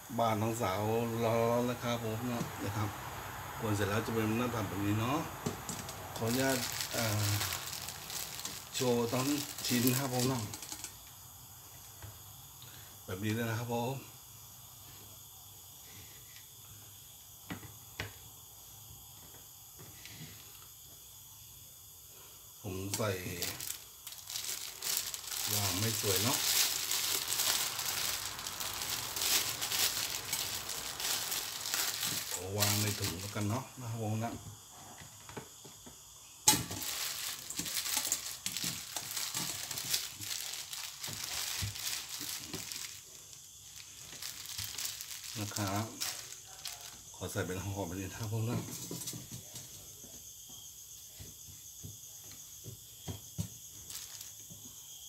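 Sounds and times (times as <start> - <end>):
faint high-pitched hiss: 0.0 - 55.0
plastic bag crinkling: 4.6 - 10.9, 22.8 - 33.6, 36.5 - 47.1, 53.8 - 54.4.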